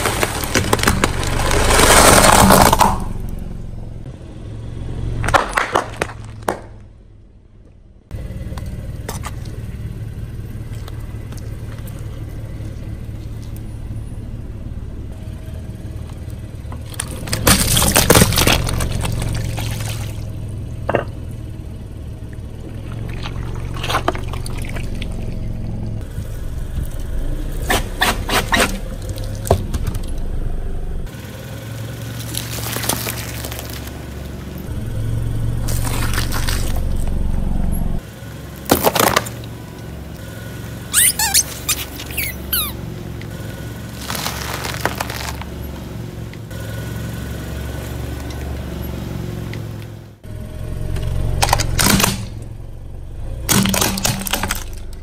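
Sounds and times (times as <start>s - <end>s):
car engine humming: 0.0s - 55.0s
tyre squishing water beads: 32.1s - 34.2s, 35.7s - 36.9s, 43.9s - 45.6s
foil-wrapped chocolates crackling: 32.2s - 34.0s, 44.0s - 45.5s.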